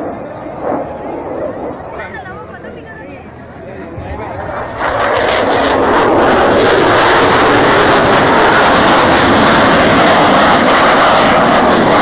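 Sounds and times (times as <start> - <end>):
loud jet engine rush: 0.0 - 12.0.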